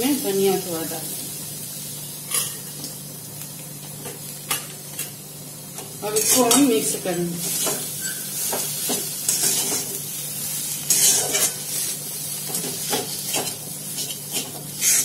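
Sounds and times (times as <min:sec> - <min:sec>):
food sizzling in a pan: 0:00.0 - 0:15.0
spatula scraping a pan: 0:06.2 - 0:06.7, 0:07.4 - 0:10.0, 0:10.6 - 0:15.0.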